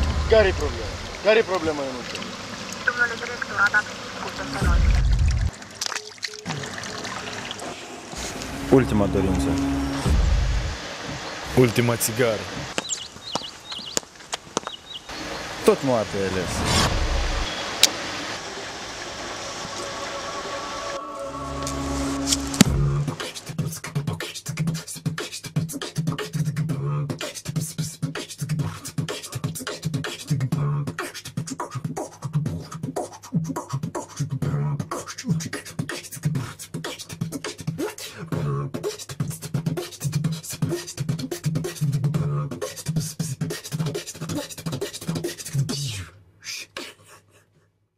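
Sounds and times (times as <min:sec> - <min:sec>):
repeating low bass line: 0:04.4 - 0:05.5, 0:08.2 - 0:11.8, 0:16.4 - 0:17.5, 0:21.0 - 0:23.2.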